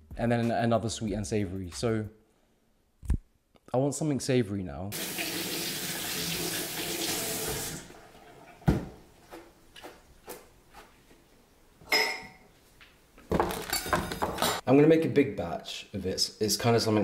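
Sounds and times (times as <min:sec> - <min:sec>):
kitchen tap running: 0:05.0 - 0:09.0.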